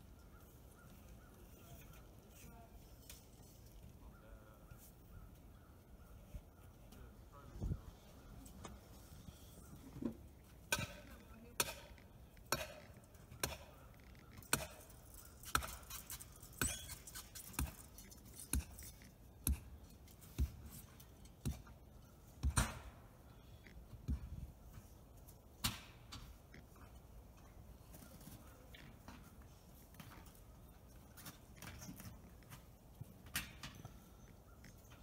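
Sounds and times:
hammering blows: 0:12.5 - 0:13.8.

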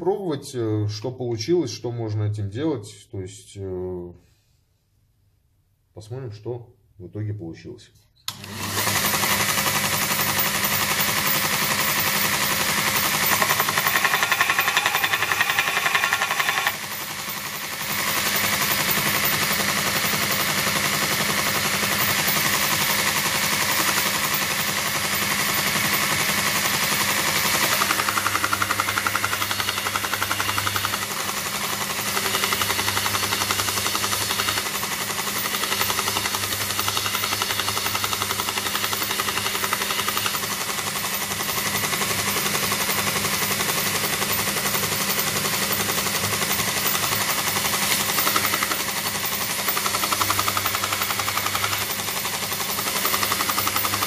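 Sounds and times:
fast even rattle: 0:09.0 - 0:20.5, 0:22.0 - 0:54.0
motor hum: 0:25.4 - 0:40.6.

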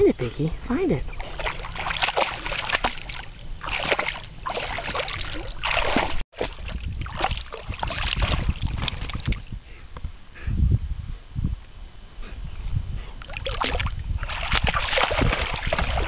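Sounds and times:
water splashing and sloshing: 0:01.1 - 0:09.6, 0:13.2 - 0:16.0.

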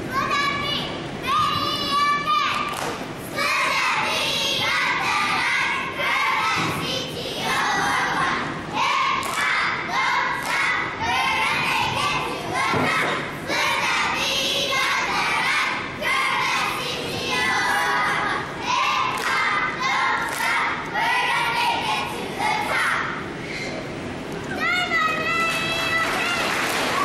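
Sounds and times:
children shouting a cheer: 0:00.1 - 0:02.8, 0:24.5 - 0:27.0.

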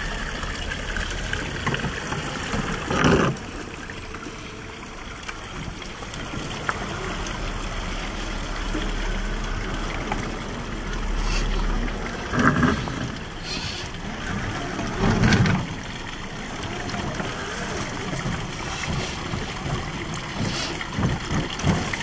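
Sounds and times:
running water: 0:00.0 - 0:22.0
tyres scrabbling on rock: 0:01.6 - 0:03.5, 0:16.5 - 0:22.0.

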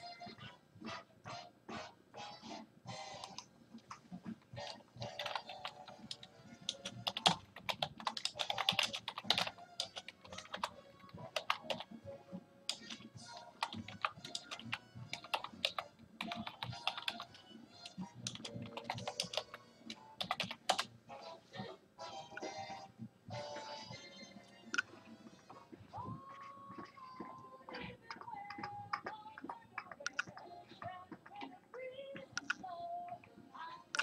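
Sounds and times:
faint song playing: 0:00.0 - 0:34.0
keyboard typing clicks: 0:05.0 - 0:11.9, 0:12.7 - 0:20.9, 0:27.7 - 0:30.5, 0:32.2 - 0:33.3.

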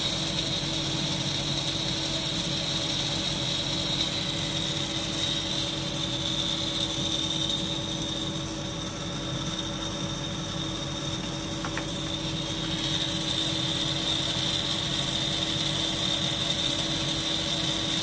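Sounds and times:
electric motor humming with whine: 0:00.0 - 0:18.0.

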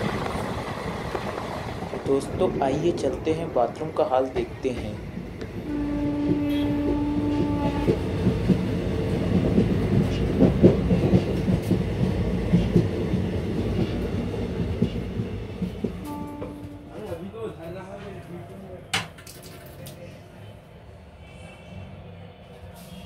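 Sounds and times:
train coach rumbling and rattling: 0:00.0 - 0:20.1
train horn: 0:05.6 - 0:08.0, 0:16.0 - 0:17.2.

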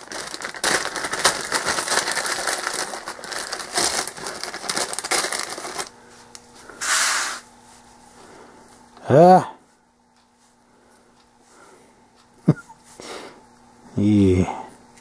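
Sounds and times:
plastic bag crinkling: 0:00.0 - 0:06.1
brief hiss: 0:06.8 - 0:07.4.

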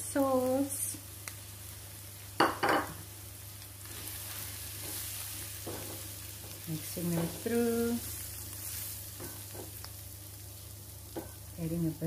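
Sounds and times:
vegetables sizzling in a frying pan: 0:00.0 - 0:12.0
spatula stirring: 0:03.8 - 0:09.9.

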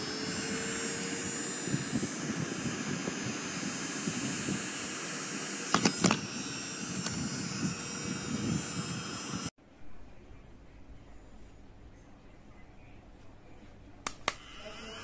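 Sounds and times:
small vacuum fan motor whirring: 0:00.0 - 0:09.5, 0:14.3 - 0:15.0.

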